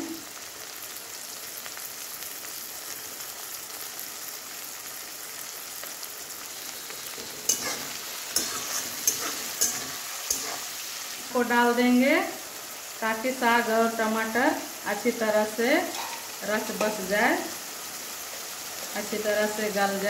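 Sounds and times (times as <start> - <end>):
vegetables sizzling in oil: 0.0 - 20.0
spatula scraping a metal pan: 7.0 - 10.8.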